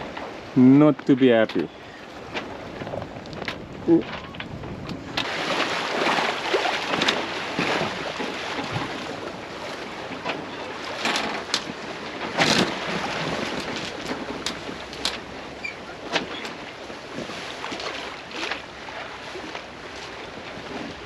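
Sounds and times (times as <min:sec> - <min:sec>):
water splashing along hull: 0:00.0 - 0:21.0
wind on microphone: 0:02.0 - 0:09.7.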